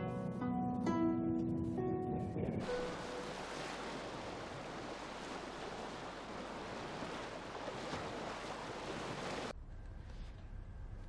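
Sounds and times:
rushing wind and water hiss: 0:02.0 - 0:09.5.

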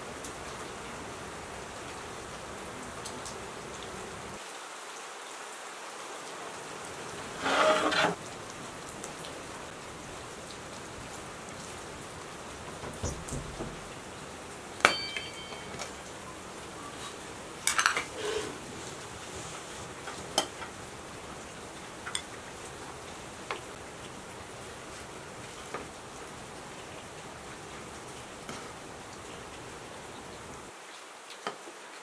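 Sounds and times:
steady hiss: 0:00.0 - 0:32.0
pan scraping clatter: 0:07.4 - 0:08.2, 0:17.7 - 0:18.6
pot lid clink: 0:14.9 - 0:16.0.

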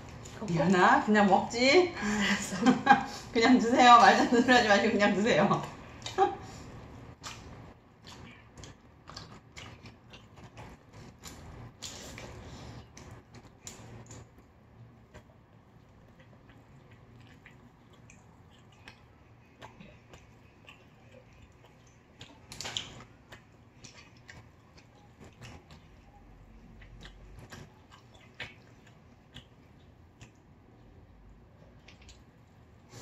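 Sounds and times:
faint chewing: 0:00.0 - 0:03.3, 0:04.0 - 0:33.0.

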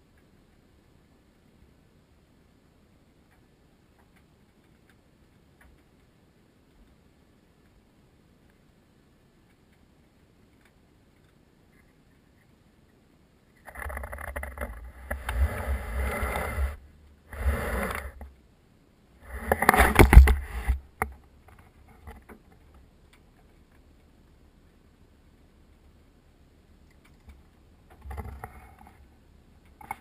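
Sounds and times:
fire rumbling and crackling: 0:13.6 - 0:18.3.

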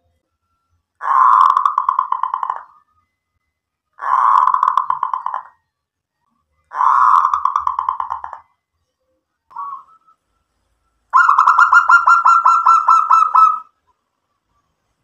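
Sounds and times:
dove cooing: 0:01.0 - 0:02.8, 0:04.0 - 0:05.5, 0:06.7 - 0:08.4, 0:09.5 - 0:10.0, 0:11.2 - 0:13.7.

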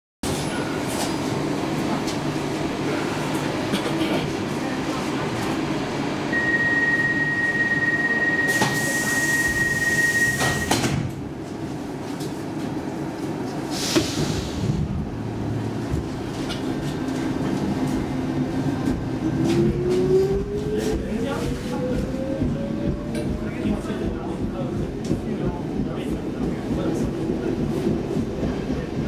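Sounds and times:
train low hum: 0:00.2 - 0:29.0
hiss of air: 0:13.7 - 0:14.7.

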